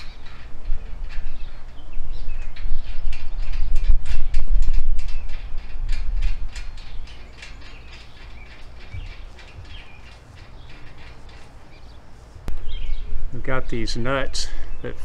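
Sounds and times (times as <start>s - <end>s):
birds chirping: 0.0s - 15.0s
ratchet wrench clicking: 6.0s - 11.9s.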